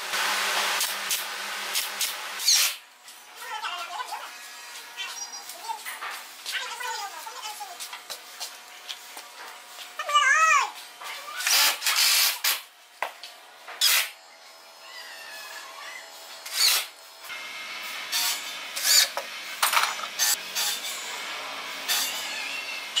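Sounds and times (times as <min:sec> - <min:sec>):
cordless drill driving screws: 0:11.4 - 0:12.6.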